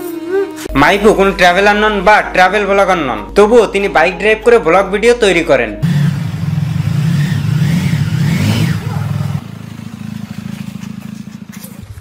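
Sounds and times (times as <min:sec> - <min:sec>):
motorcycle engine running: 0:05.8 - 0:12.0.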